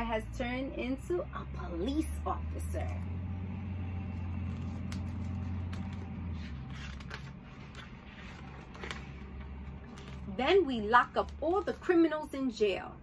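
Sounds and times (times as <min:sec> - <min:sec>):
book pages rustling: 0:04.0 - 0:12.0.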